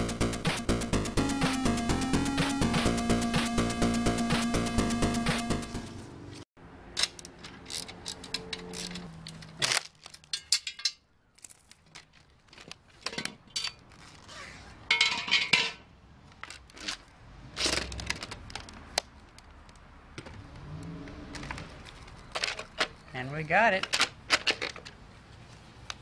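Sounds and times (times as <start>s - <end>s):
background music: 0.0s - 6.0s.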